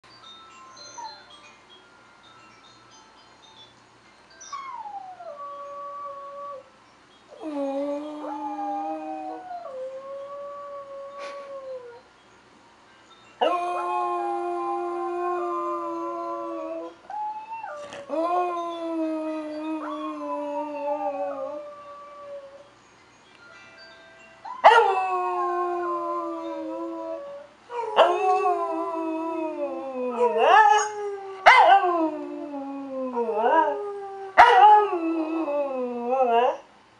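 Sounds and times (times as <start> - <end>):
dog howling: 24.6 - 36.6.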